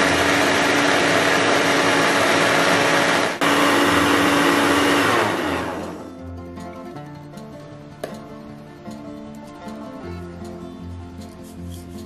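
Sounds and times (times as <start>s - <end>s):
blender motor whirring: 0.0s - 6.1s.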